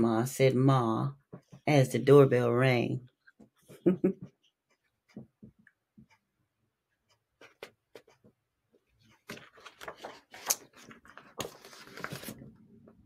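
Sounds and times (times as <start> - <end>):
paper pages rustling: 9.0 - 12.6.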